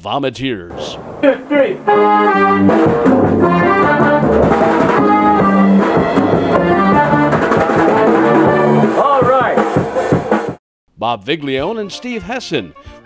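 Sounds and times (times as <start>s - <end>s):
accordions playing chords: 1.2s - 9.4s.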